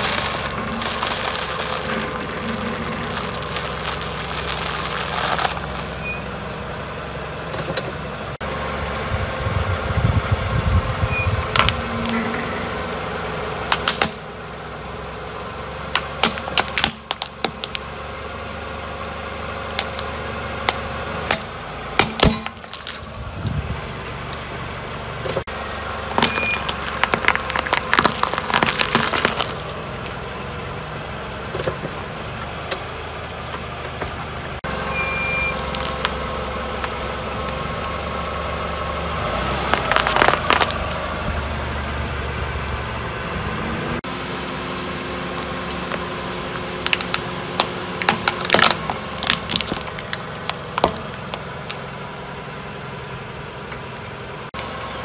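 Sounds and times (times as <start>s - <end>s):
dry noodles crunching: 0.0s - 6.0s, 26.1s - 29.8s, 39.7s - 40.8s, 46.8s - 50.6s
leafy greens crunching: 0.0s - 6.0s, 26.1s - 29.8s, 39.7s - 40.9s, 46.8s - 51.3s
car engine idling: 0.0s - 55.0s
plastic toy cracking: 26.2s - 29.7s, 39.7s - 40.8s, 46.9s - 50.2s.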